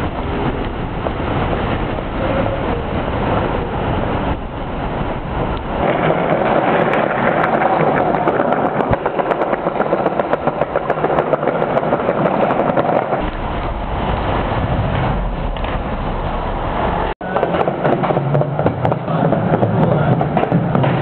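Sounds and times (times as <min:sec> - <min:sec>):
skateboard rolling over tiles: 0:05.7 - 0:13.4, 0:17.2 - 0:21.0.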